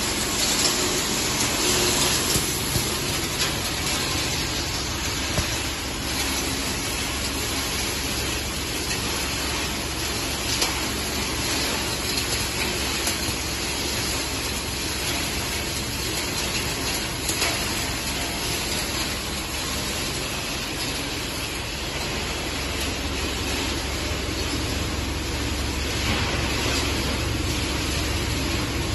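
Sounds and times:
recycling machine rushing noise: 0.0s - 10.3s.

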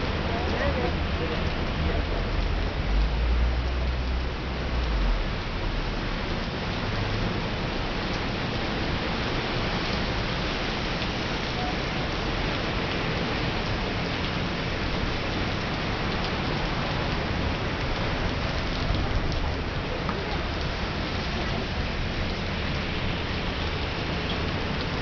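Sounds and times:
heavy rain on pavement: 0.0s - 25.0s.

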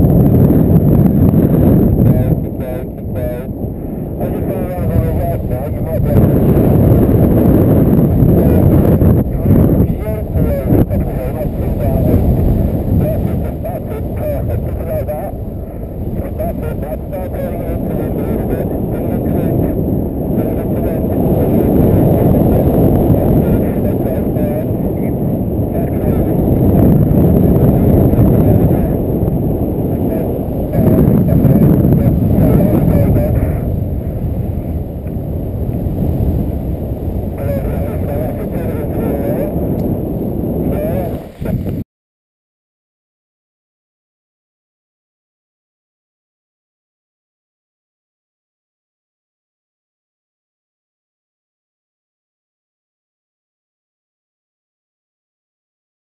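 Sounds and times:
wind buffeting microphone: 0.0s - 41.8s.

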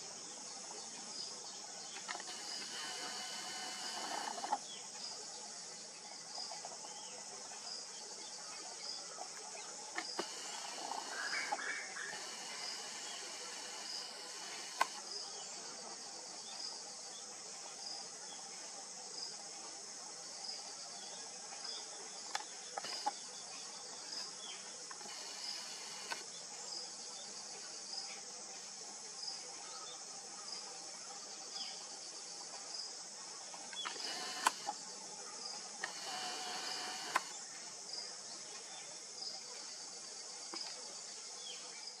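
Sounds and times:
insects droning: 0.0s - 42.0s
sharp clicks: 2.0s - 4.6s, 9.4s - 15.1s, 22.3s - 23.2s, 24.9s - 26.3s, 33.7s - 34.8s, 35.8s - 37.4s.

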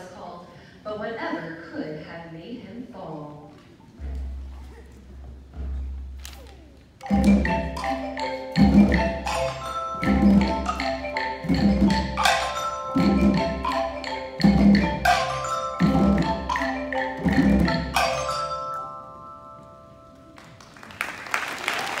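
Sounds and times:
drum strokes: 4.0s - 18.6s
xylophone ensemble playing: 7.0s - 20.4s
applause: 20.4s - 22.0s.

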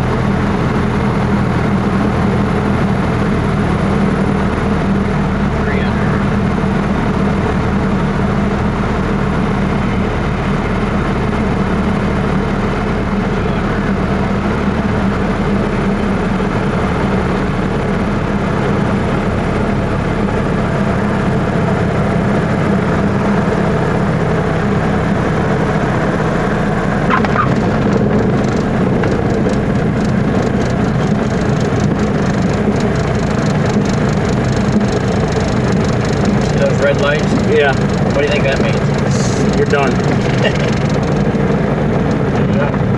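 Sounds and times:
propeller airplane engine running: 0.0s - 42.9s
clicks and rattles rolling on runway: 27.0s - 42.9s.

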